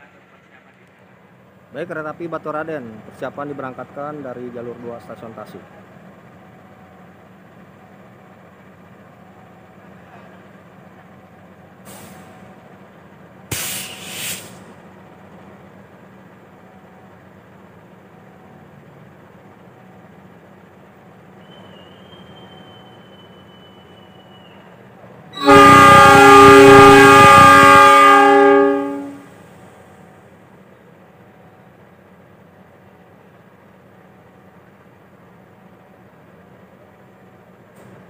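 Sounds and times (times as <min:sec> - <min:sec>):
locomotive idling: 0:00.0 - 0:38.0
thin steady whistle tone: 0:21.4 - 0:24.8
locomotive air horn blast: 0:25.3 - 0:29.4.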